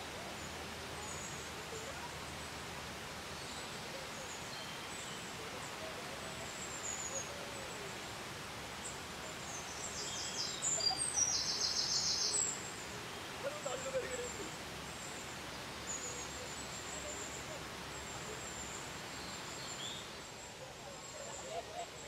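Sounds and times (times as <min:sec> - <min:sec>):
small birds chirping: 0:09.5 - 0:20.4.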